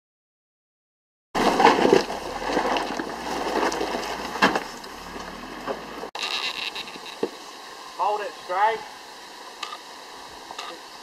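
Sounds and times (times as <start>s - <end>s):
stones knocking: 1.4s - 5.3s
tyres crunching over gravel: 1.4s - 7.4s.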